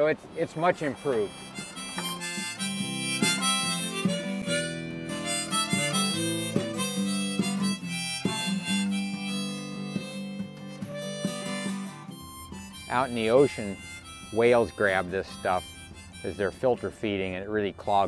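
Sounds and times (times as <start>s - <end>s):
held melody line: 0.3s - 18.0s
short plucked notes: 0.8s - 17.4s.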